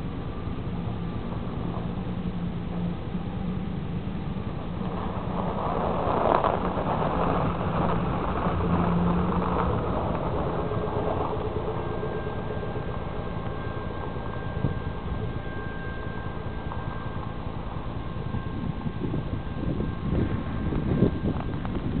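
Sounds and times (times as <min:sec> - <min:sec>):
diesel locomotive rumble: 0:00.0 - 0:22.0
wind buffeting microphone: 0:00.0 - 0:22.0
faint steady high tone: 0:07.2 - 0:22.0.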